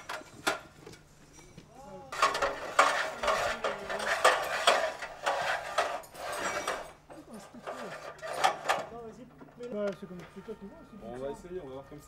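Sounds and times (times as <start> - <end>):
metal ladder clanking and rattling: 0.0 - 0.7, 1.3 - 9.8.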